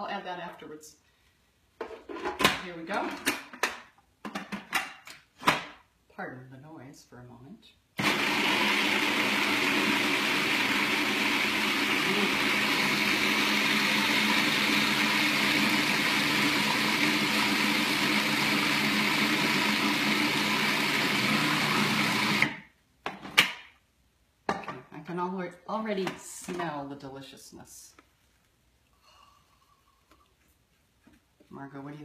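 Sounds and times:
food processor running: 0:08.0 - 0:22.6.

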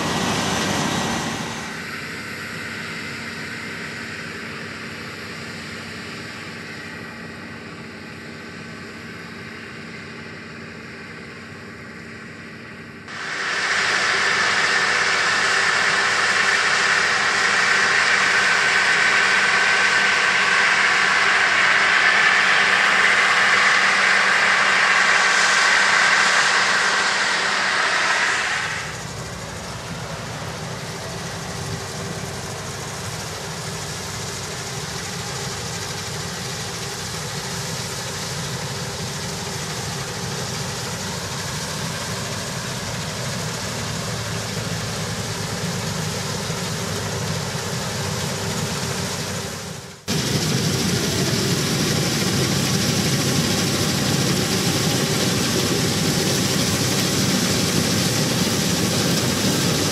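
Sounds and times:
combine harvester engine hum: 0:00.0 - 0:59.9
hiss of straw and chaff spraying: 0:13.1 - 0:29.2.

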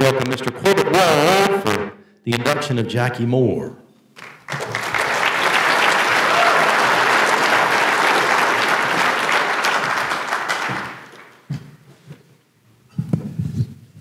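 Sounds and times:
audience applauding: 0:04.2 - 0:11.5.

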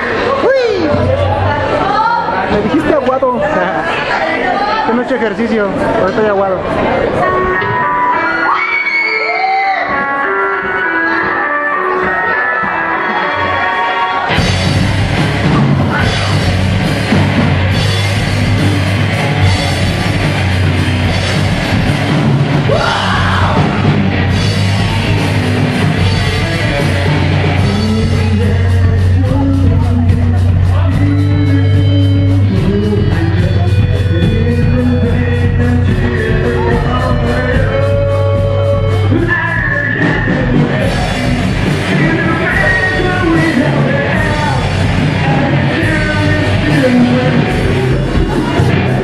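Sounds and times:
electric guitar: 0:07.2 - 0:49.0
drum kit: 0:14.2 - 0:49.0
electric bass: 0:14.2 - 0:49.0.

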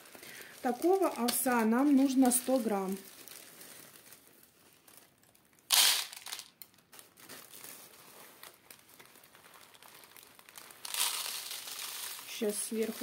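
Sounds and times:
plastic bag crinkling: 0:00.0 - 0:13.0
grain pouring onto tray: 0:10.8 - 0:13.0.

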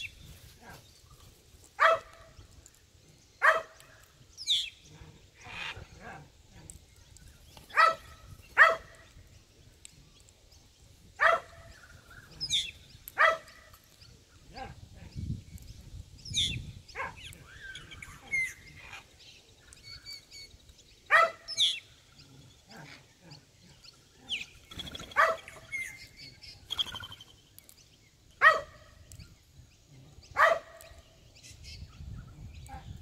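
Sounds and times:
faint birds chirping: 0:00.0 - 0:33.0
dog barking: 0:01.8 - 0:02.3, 0:03.4 - 0:03.8, 0:07.7 - 0:08.9, 0:11.2 - 0:11.7, 0:13.2 - 0:13.6, 0:17.0 - 0:17.2, 0:21.1 - 0:21.5, 0:25.2 - 0:25.6, 0:28.4 - 0:28.8, 0:30.4 - 0:30.9.

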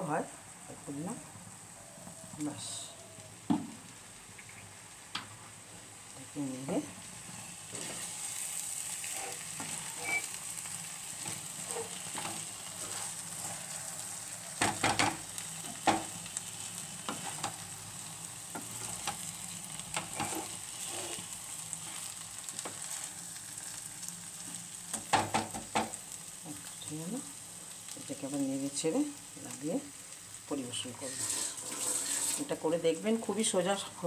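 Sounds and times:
frying sizzle: 0:00.0 - 0:34.0
spatula stirring rice in pan: 0:07.2 - 0:26.8, 0:31.0 - 0:32.6
spatula knocking and scraping pan: 0:11.2 - 0:13.5, 0:14.6 - 0:16.2, 0:19.9 - 0:21.2, 0:24.9 - 0:26.0, 0:31.1 - 0:32.5.

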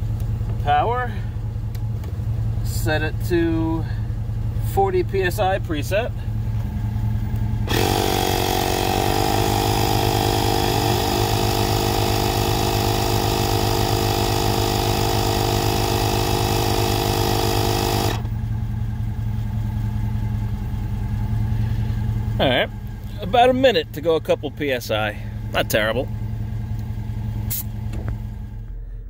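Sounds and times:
tire inflator compressor running: 0:06.1 - 0:23.5, 0:24.3 - 0:28.9.

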